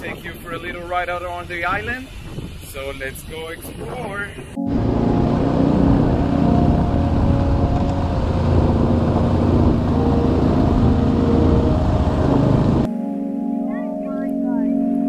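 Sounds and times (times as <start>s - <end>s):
motorcycle engine rumbling: 3.9s - 12.9s.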